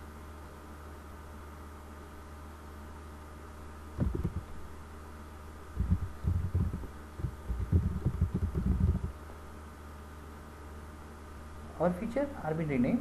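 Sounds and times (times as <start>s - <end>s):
low electrical hum: 0.0s - 13.0s
keyboard typing thuds: 4.0s - 4.6s, 5.8s - 9.2s.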